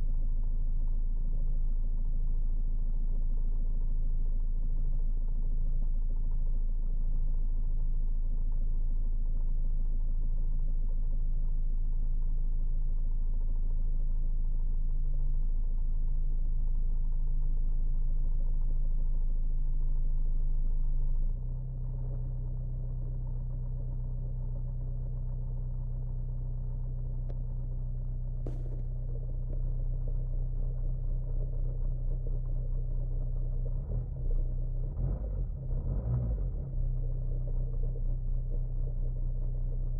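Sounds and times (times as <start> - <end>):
diesel engine idling: 28.4 - 29.5.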